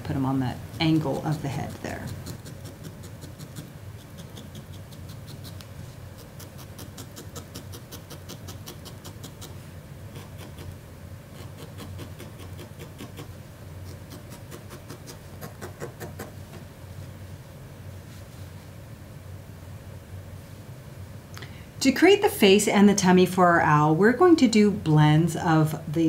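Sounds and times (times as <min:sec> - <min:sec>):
low steady hum: 0:00.0 - 0:26.0
felting needle poking wool: 0:00.7 - 0:16.7.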